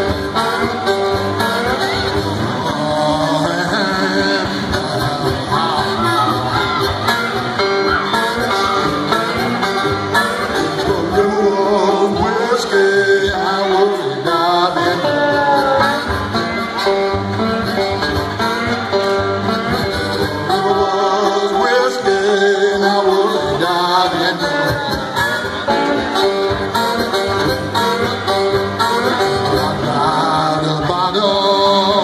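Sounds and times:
slide resonator guitar blues: 0:00.0 - 0:31.2
man singing: 0:00.0 - 0:32.0.

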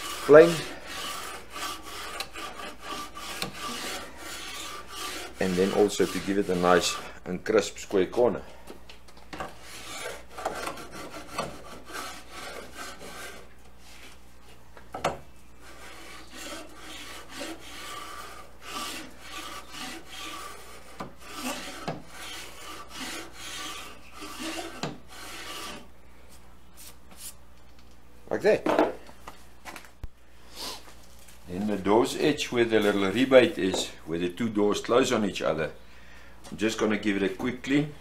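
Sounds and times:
hand plane scraping wood: 0:00.0 - 0:07.1, 0:09.4 - 0:14.3, 0:15.6 - 0:25.9, 0:31.5 - 0:34.0.

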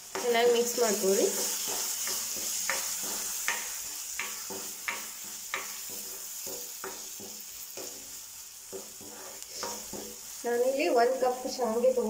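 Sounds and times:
vegetables sizzling in oil: 0:00.0 - 0:12.0
plastic spatula scraping pan: 0:08.7 - 0:10.2.

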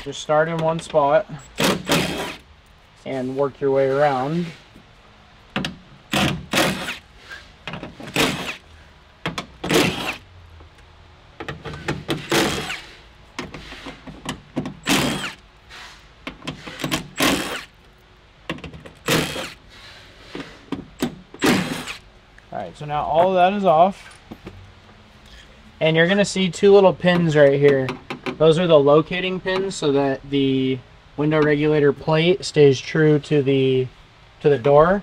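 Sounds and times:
cordless electric ratchet spinning: 0:14.8 - 0:15.4.

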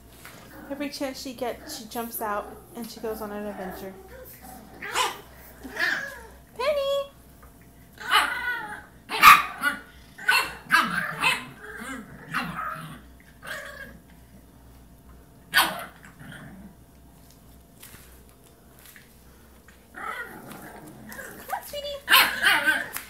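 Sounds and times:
puppy barking: 0:04.1 - 0:06.3, 0:08.0 - 0:11.6, 0:15.5 - 0:16.0, 0:21.2 - 0:23.0.

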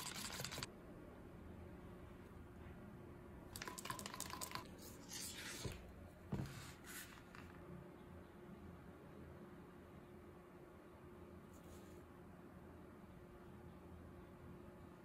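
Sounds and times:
stir stick scraping plastic cup: 0:00.0 - 0:00.7, 0:03.6 - 0:05.8.

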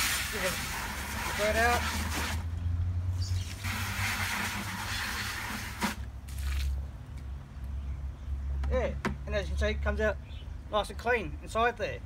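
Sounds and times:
water spraying into bucket: 0:00.0 - 0:02.5, 0:03.1 - 0:06.8
water splashing out: 0:03.3 - 0:06.8.

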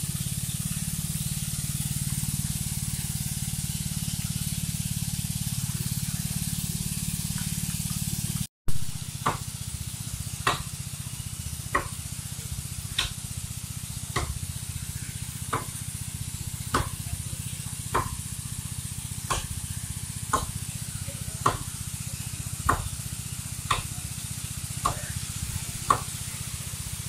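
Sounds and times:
steady low hum: 0:00.0 - 0:27.0
axe chopping tree trunk: 0:08.7 - 0:09.5, 0:10.4 - 0:10.7, 0:11.7 - 0:12.0, 0:13.0 - 0:13.2, 0:14.1 - 0:14.4, 0:15.5 - 0:15.7, 0:16.7 - 0:17.0, 0:17.9 - 0:18.2, 0:19.3 - 0:19.6, 0:20.3 - 0:20.6, 0:21.4 - 0:21.7, 0:22.6 - 0:22.9, 0:23.7 - 0:23.9, 0:25.9 - 0:26.1.

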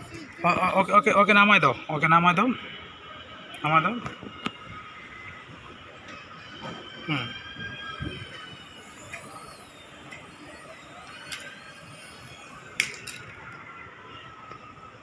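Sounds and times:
toy helicopter rotor motors whining: 0:00.0 - 0:15.0.

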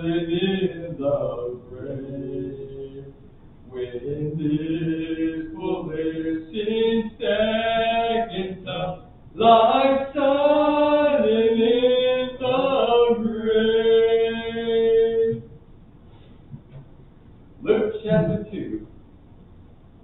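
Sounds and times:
person singing unaccompanied: 0:00.0 - 0:15.5.

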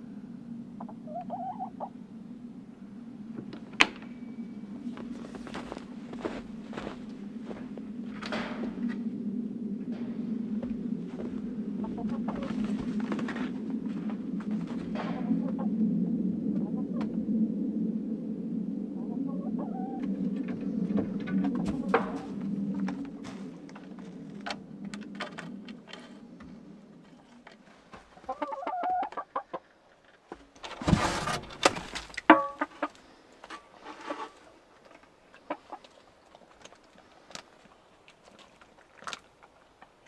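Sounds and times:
low steady hum: 0:00.0 - 0:28.3
hens clucking: 0:00.8 - 0:02.0, 0:11.7 - 0:13.6, 0:14.6 - 0:15.8, 0:19.0 - 0:24.1, 0:28.1 - 0:29.8, 0:32.2 - 0:33.1, 0:35.2 - 0:36.0
hen wings flapping: 0:11.1 - 0:15.3.

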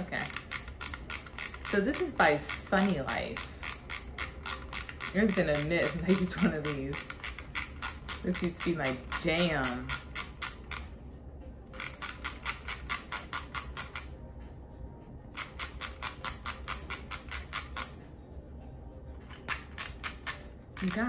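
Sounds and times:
camera film advance ratcheting clicks: 0:00.2 - 0:10.9.

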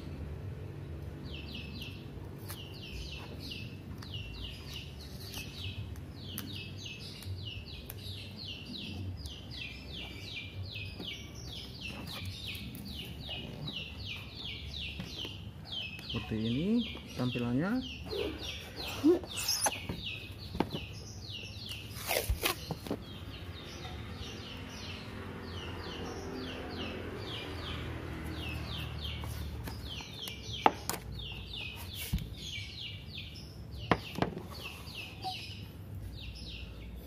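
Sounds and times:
rapid chirping: 0:18.0 - 0:23.7.

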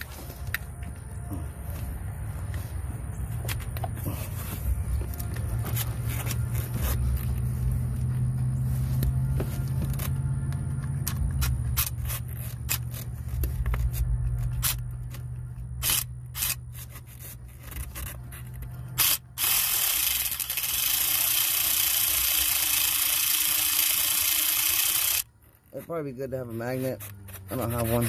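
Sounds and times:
ratchet clicking: 0:19.0 - 0:25.3.

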